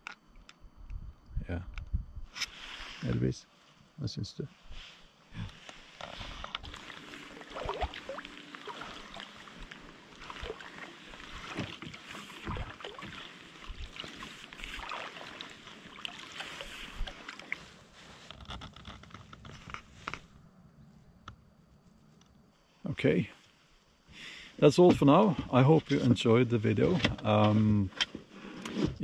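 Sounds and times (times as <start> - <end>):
paddle strokes splashing water: 5.9 - 18.3.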